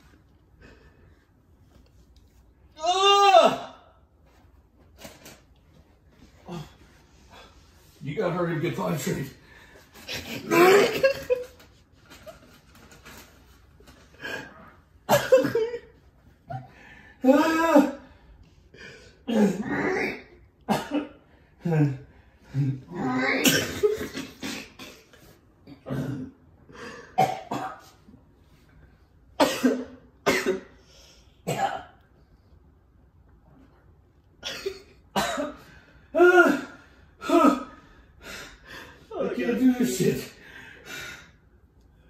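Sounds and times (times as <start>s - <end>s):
man gagging and coughing: 10.1s - 11.4s, 15.1s - 15.9s, 19.2s - 25.1s, 25.7s - 26.4s, 27.1s - 27.9s, 29.4s - 30.8s, 31.5s - 32.0s, 34.4s - 35.6s.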